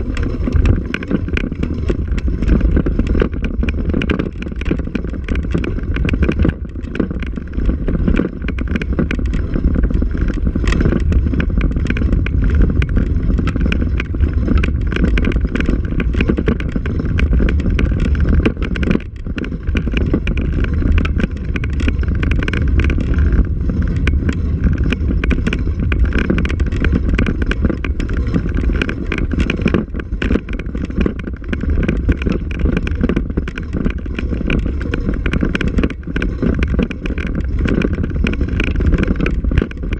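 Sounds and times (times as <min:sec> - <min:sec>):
camera mount rattling and knocking: 0:00.0 - 0:39.9
wind buffeting microphone: 0:00.0 - 0:39.9.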